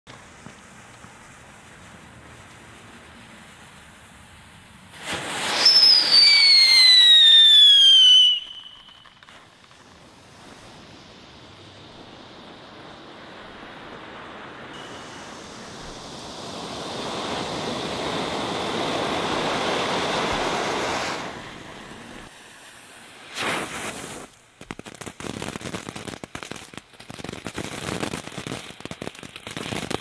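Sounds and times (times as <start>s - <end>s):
firework rushing hiss: 0.1s - 30.0s
fuse hiss: 0.1s - 30.0s
firework whistle falling in pitch: 5.0s - 9.7s.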